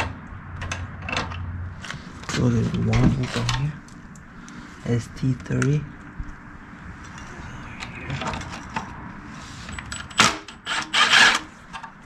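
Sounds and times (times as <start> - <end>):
impact driver whirring: 10.3 - 11.5.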